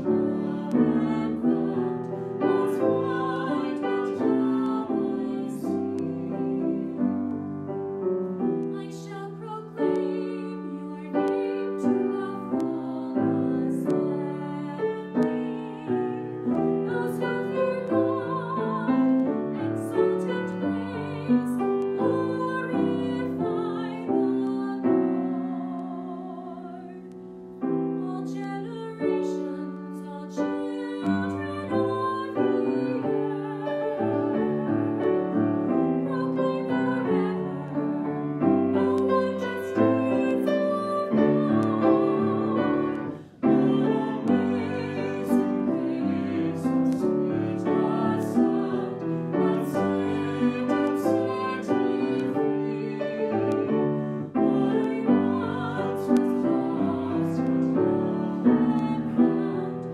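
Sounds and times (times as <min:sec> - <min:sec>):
grand piano: 0:00.0 - 0:59.9
woman singing with vibrato: 0:08.7 - 0:16.0, 0:28.0 - 0:34.3, 0:38.8 - 0:46.6.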